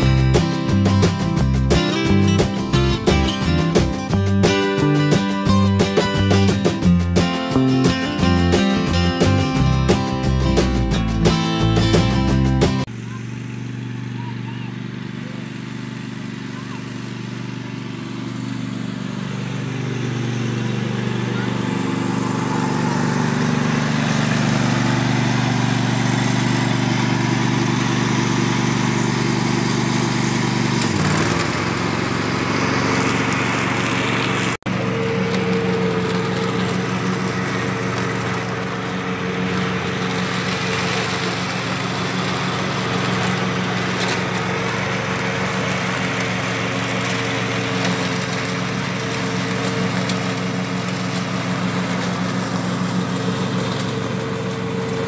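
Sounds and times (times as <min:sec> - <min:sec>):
lawn tractor engine running: 0:00.0 - 0:55.0.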